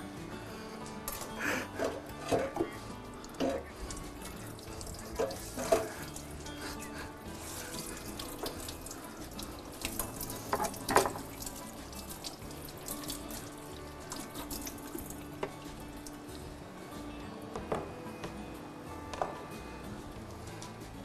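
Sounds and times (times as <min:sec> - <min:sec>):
clatters in a sink basin: 0:01.0 - 0:06.4, 0:09.8 - 0:15.5
tap running into a sink: 0:09.8 - 0:16.2.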